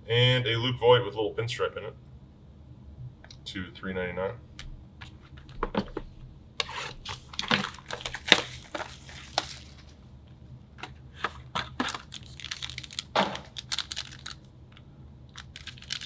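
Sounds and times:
foil pack crinkling: 6.8 - 10.0, 11.2 - 14.5, 15.3 - 16.0.

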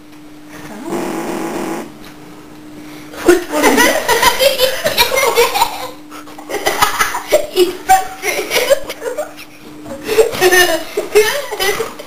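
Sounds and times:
girls laughing: 3.3 - 12.0.

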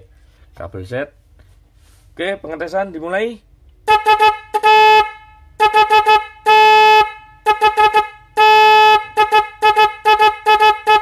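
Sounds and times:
snail horn honking: 3.8 - 11.0.

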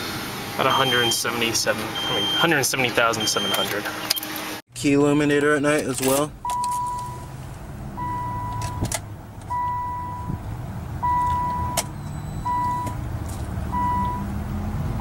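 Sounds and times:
electronic warning beeps: 0.7 - 1.3, 2.0 - 4.3, 11.0 - 13.0, 13.8 - 14.3
key clicks in ignition: 5.7 - 7.0, 8.5 - 9.8.

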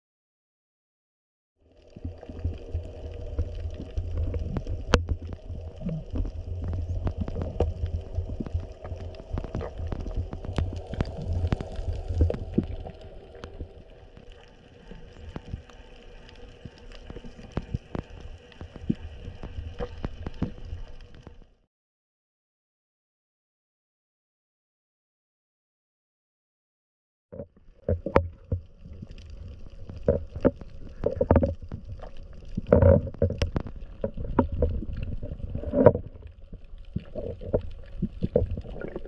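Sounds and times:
underwater water rumble: 1.6 - 21.6, 27.4 - 39.0
faint steady hum: 1.7 - 21.6
sharp underwater clicks and crackles: 1.7 - 21.6, 27.4 - 39.0.

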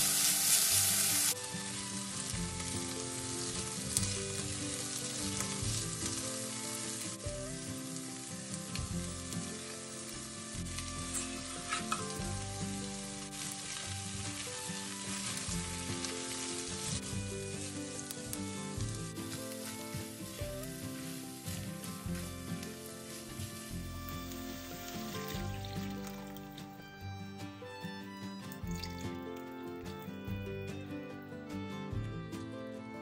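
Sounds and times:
vegetables sizzling in a pot: 0.0 - 27.0
quiet music: 0.0 - 33.0
spatula stirring: 10.6 - 12.3.

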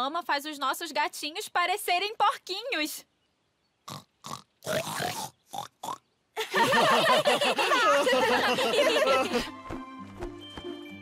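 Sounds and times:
cartoon voices oinking and snorting: 3.9 - 6.0
voices laughing: 6.4 - 9.5.

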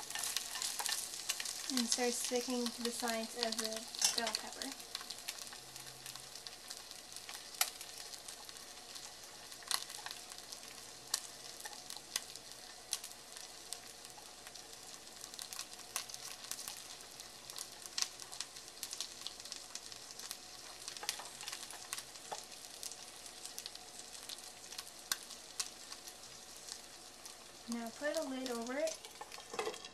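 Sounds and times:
food sizzling in oil: 0.0 - 29.9
oil popping and crackling: 0.0 - 29.9.

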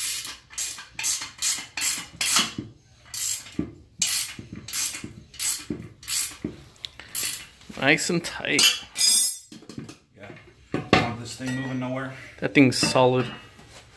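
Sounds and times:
ratchet wrench clicking: 3.1 - 6.4.

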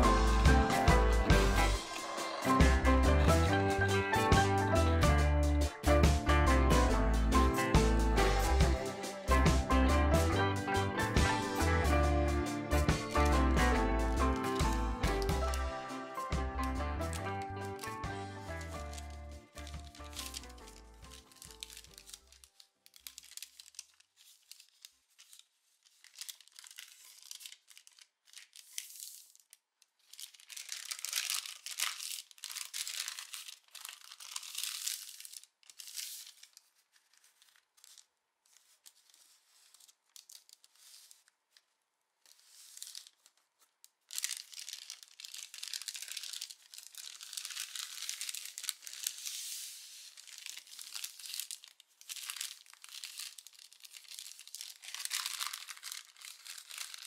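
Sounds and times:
paper rustling and crinkling: 1.4 - 2.6, 14.1 - 57.0.

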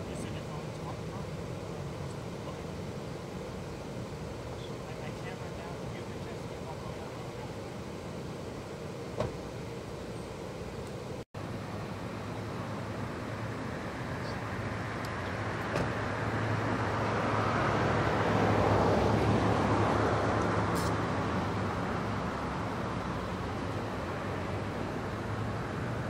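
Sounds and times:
low hum of traffic: 0.0 - 26.0
passing vehicle road noise: 11.4 - 26.0.

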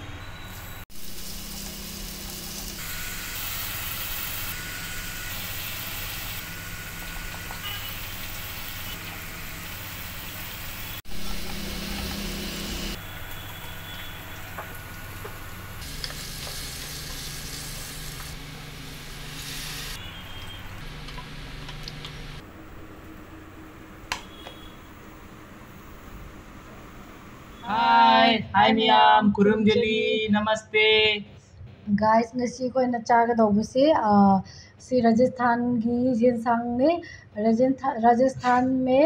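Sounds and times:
food sizzling in oil: 0.5 - 22.4.

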